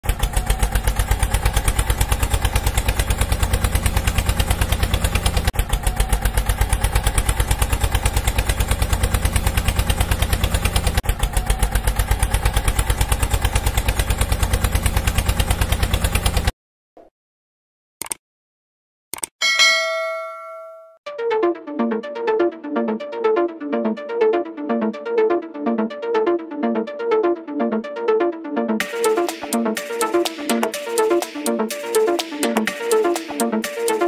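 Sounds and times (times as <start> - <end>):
tractor engine chugging: 0.0 - 16.5.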